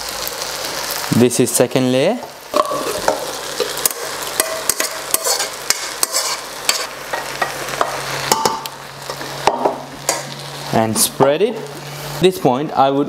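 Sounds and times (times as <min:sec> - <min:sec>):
spoons scraping steel cookware: 0:02.6 - 0:06.9.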